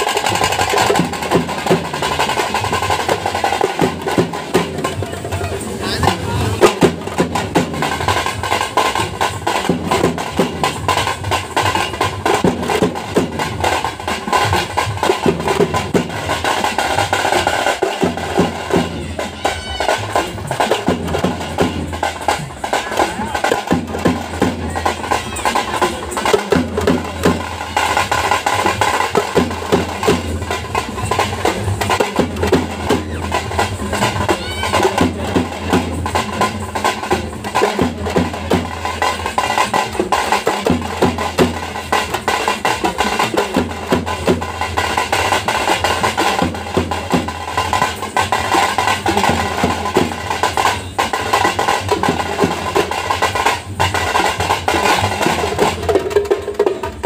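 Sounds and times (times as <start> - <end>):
barrel drums beaten fast: 0.0 - 57.0
crowd voices: 0.0 - 57.0.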